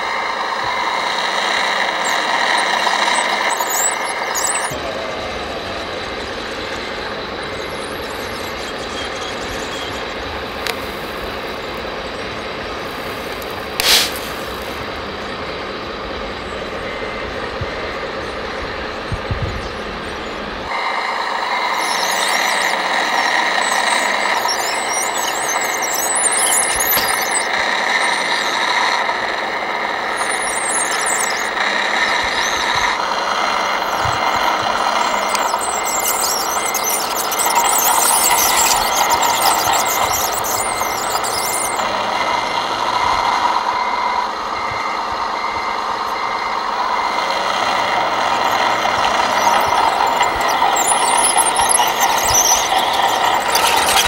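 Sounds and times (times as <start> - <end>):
electric motors whining: 0.0 - 54.0
motor squealing under strain: 0.0 - 54.0
sharp click: 13.4 - 14.7.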